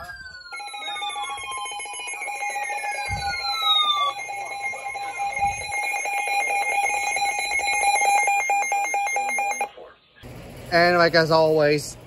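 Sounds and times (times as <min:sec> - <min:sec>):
falling-pitch sweeps: 0:00.0 - 0:08.5
pulsing high alarm tone: 0:00.0 - 0:09.7.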